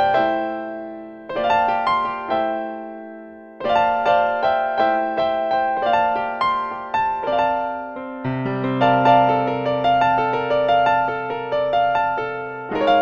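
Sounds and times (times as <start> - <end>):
solo piano improvisation: 0.0 - 13.0.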